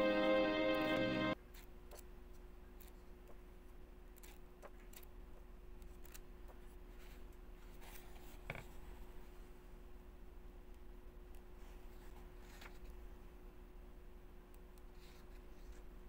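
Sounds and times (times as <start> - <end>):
low steady hum: 0.0 - 16.0
book pages turning: 11.9 - 12.9.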